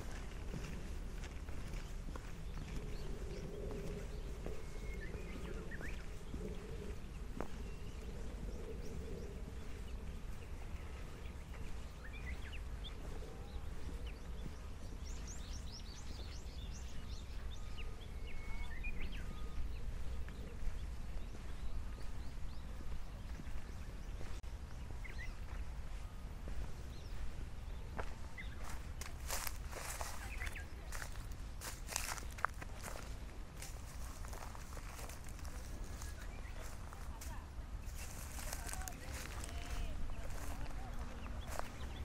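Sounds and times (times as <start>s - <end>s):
birds chirping: 0.0s - 42.0s
steady low rumble: 0.0s - 42.0s.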